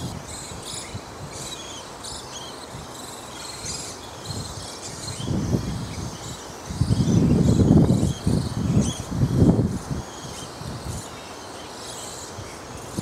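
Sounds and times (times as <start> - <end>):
wildlife chirping: 0.2 - 9.1.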